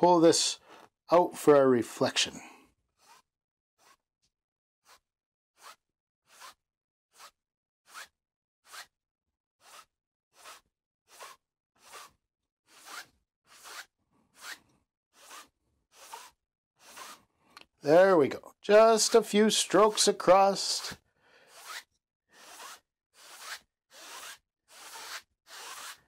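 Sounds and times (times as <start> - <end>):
brush swishing on canvas: 22.4 - 26.0.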